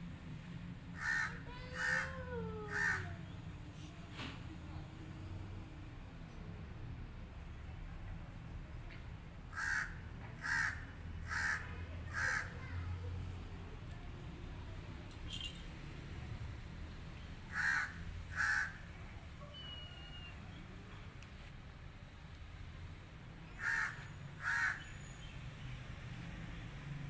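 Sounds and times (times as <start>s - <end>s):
crow cawing: 1.0s - 2.1s, 2.7s - 3.1s, 9.5s - 12.6s, 17.5s - 18.8s, 23.6s - 24.8s.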